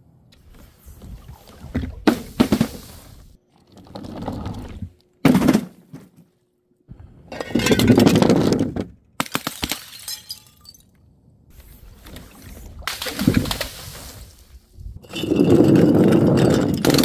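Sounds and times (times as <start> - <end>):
glass jars shattering: 7.4 - 8.1, 9.5 - 10.9
glass shards clinking: 9.9 - 10.8.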